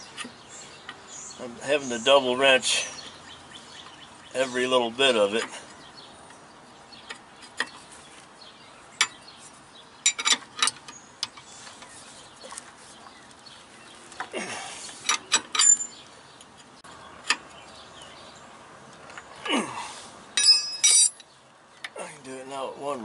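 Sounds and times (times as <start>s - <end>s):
wrenches clinking on nuts: 10.0s - 11.4s, 15.0s - 16.0s, 20.4s - 21.3s.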